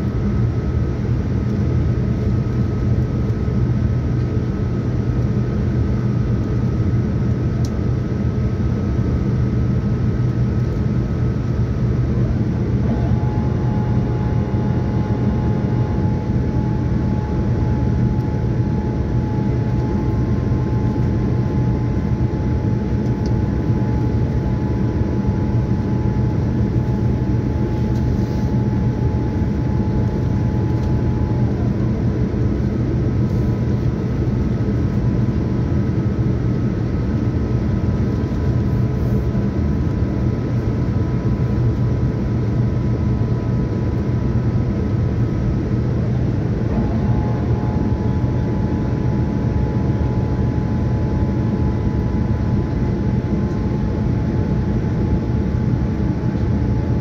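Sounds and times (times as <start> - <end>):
airplane cabin roar: 0.0 - 57.0
faint whining tones: 12.2 - 34.5, 45.9 - 55.0.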